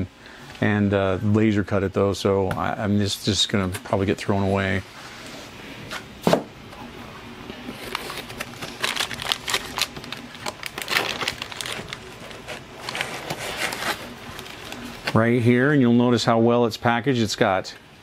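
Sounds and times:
plastic film crinkling: 7.6s - 15.2s.

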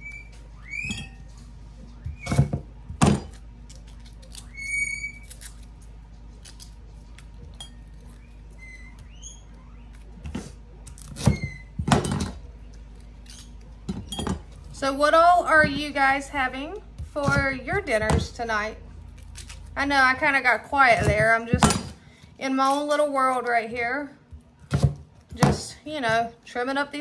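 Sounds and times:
high whistle-like chirps: 0.0s - 1.3s.

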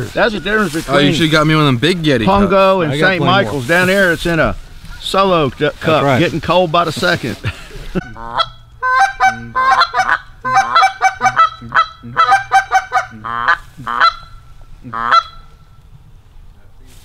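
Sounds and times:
goose honking: 8.0s - 15.8s.

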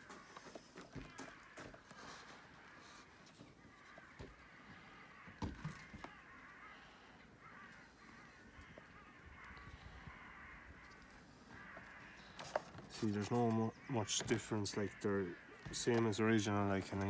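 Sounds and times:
distant crows cawing: 0.0s - 17.0s.

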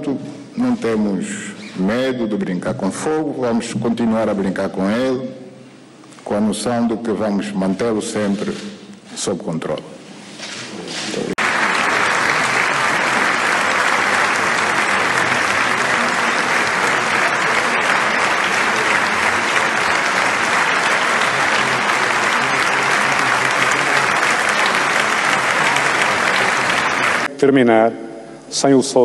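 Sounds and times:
audience applauding: 11.4s - 27.3s.

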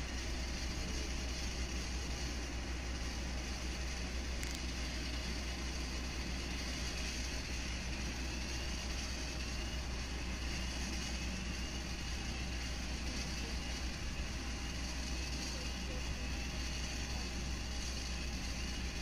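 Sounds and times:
faint high whine: 0.0s - 19.0s
low rumble of vehicles and aircraft: 0.0s - 19.0s.

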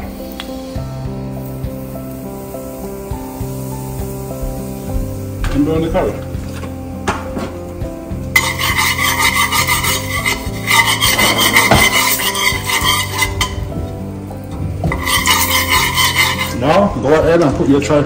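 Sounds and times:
curry powder frying in oil: 0.0s - 18.0s
spoon scraping metal pan: 8.4s - 13.7s, 14.9s - 17.2s.

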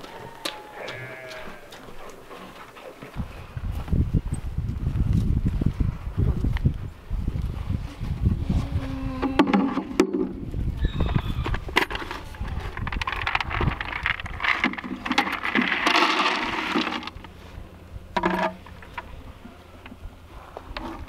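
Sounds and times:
horse feed rattling into feeder: 11.1s - 17.3s, 18.2s - 19.1s
horse eating from feeder: 11.5s - 17.3s.

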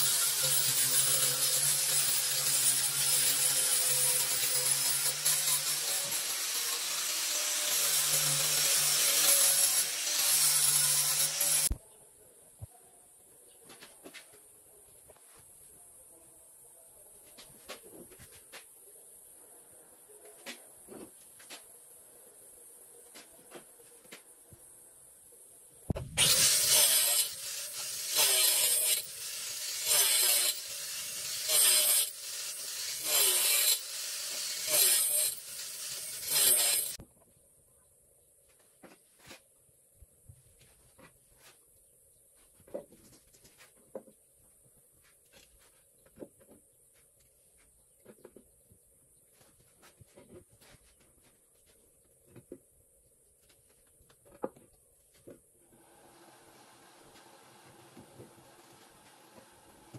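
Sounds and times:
angle grinder grinding stone: 0.0s - 11.7s, 26.2s - 37.0s.

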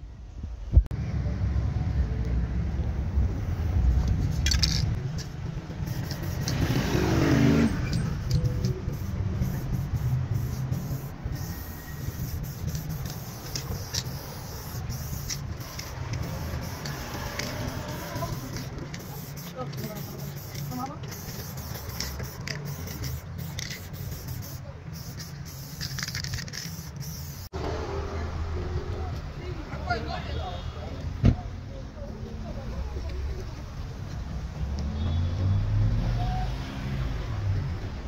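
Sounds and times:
street traffic rumble: 0.0s - 38.0s
spray paint can hissing: 3.9s - 27.5s.

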